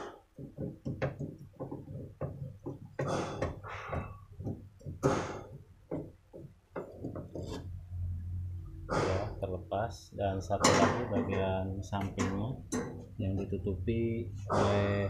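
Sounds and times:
wrench clicking and knocking on metal: 0:00.1 - 0:07.6, 0:12.1 - 0:13.1
metal scraping rasps: 0:06.9 - 0:07.8.

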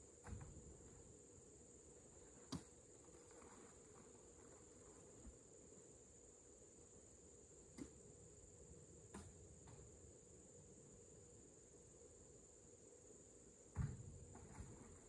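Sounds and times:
insect chorus: 0:00.0 - 0:15.0.

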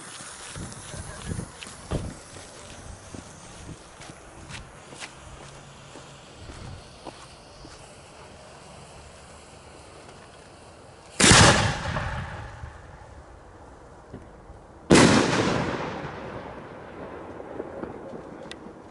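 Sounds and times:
firework shell bursting: 0:00.0 - 0:13.4, 0:14.0 - 0:18.8
mortar launch bang: 0:11.2 - 0:12.9, 0:14.9 - 0:16.6.

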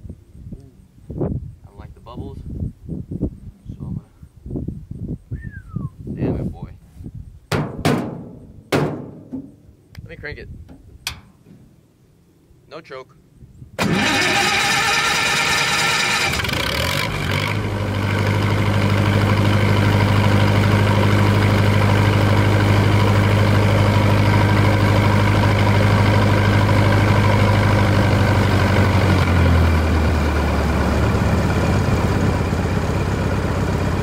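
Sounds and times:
engine running low drone: 0:13.8 - 0:34.0.

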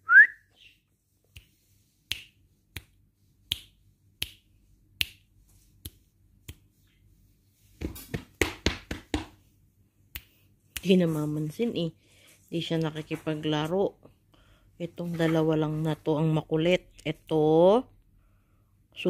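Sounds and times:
fingers snapping: 0:01.3 - 0:06.7.

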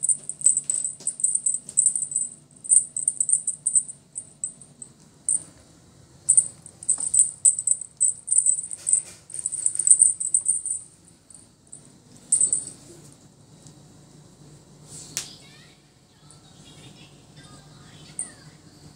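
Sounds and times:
small bell jingling: 0:00.0 - 0:05.5, 0:06.3 - 0:12.9, 0:18.1 - 0:18.4.

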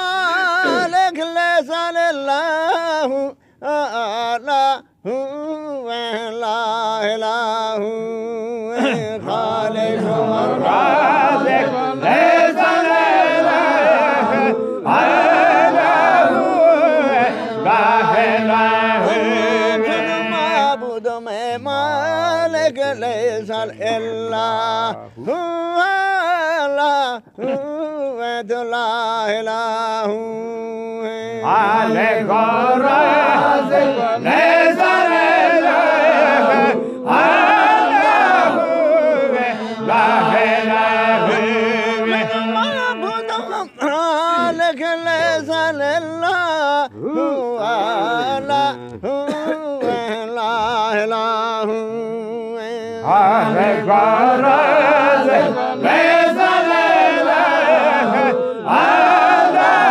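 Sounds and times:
men singing a chant together: 0:00.0 - 0:59.9
solo voice with wavering pitch: 0:41.2 - 0:50.2.

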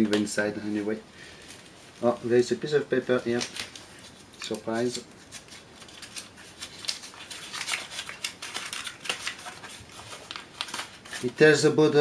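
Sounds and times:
paper crinkling: 0:03.0 - 0:11.6.

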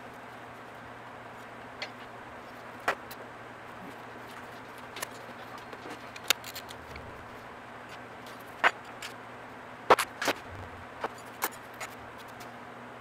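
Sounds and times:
low hum: 0:03.6 - 0:09.5, 0:10.2 - 0:12.3.

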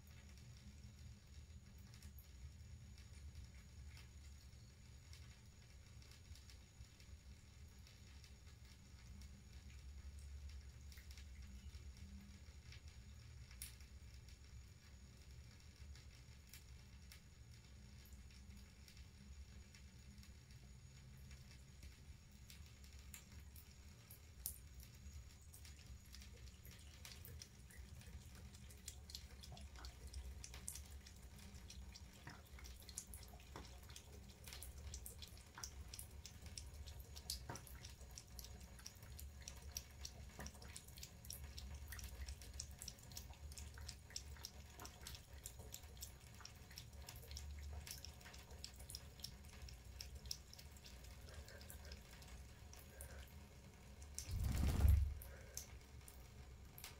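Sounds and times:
low steady hum: 0:00.0 - 0:56.9
water drips and splashes: 0:00.0 - 0:56.9
tap water trickling: 0:21.2 - 0:53.3.

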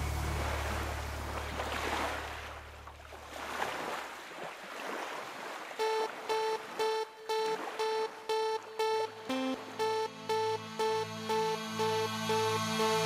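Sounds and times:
low hum: 0:00.0 - 0:02.8
sea waves washing: 0:00.0 - 0:09.0
pulsing synth electronic music: 0:05.8 - 0:13.0.

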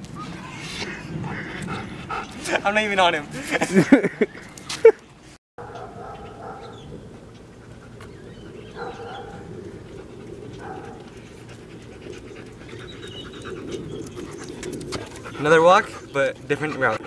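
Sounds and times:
husky panting: 0:00.6 - 0:02.8, 0:07.4 - 0:17.0.

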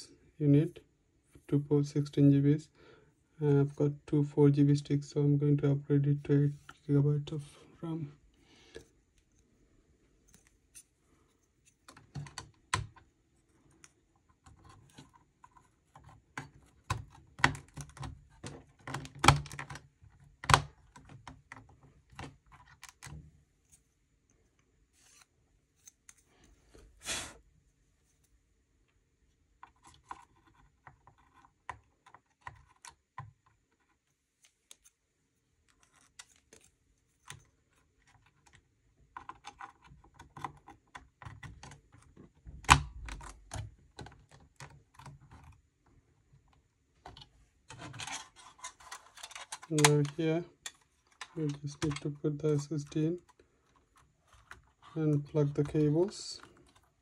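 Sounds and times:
brief scrape: 0:26.9 - 0:27.4
small plastic and metal clicks: 0:29.6 - 0:35.0.

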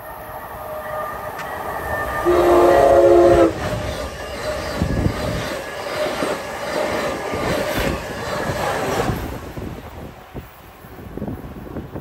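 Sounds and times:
train rushing past: 0:00.0 - 0:12.0
train horn blast: 0:00.7 - 0:03.8
wheels clacking on track: 0:02.8 - 0:09.7.

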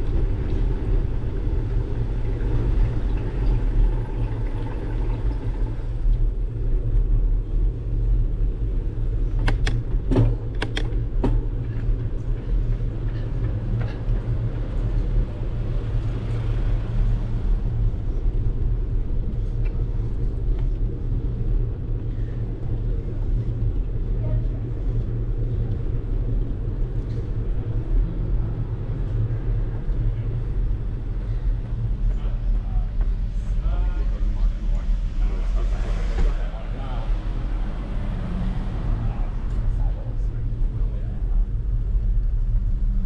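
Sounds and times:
wind and road noise rumble: 0:00.0 - 0:43.0
sharp clicks or rattles: 0:10.5 - 0:11.0.

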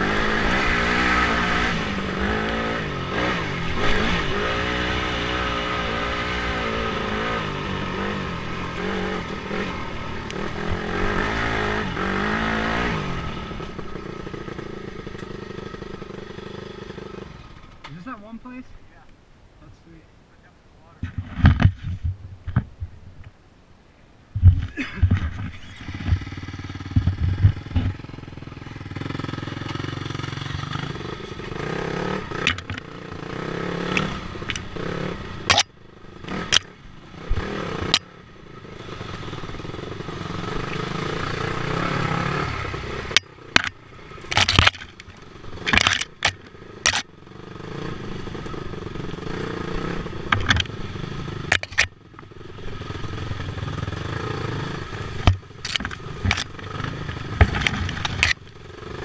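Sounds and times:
dirt bike engine revving: 0:00.0 - 0:18.2, 0:24.7 - 0:59.0
knocks clatters and scrapes: 0:43.6 - 0:47.0, 0:55.2 - 0:56.5.

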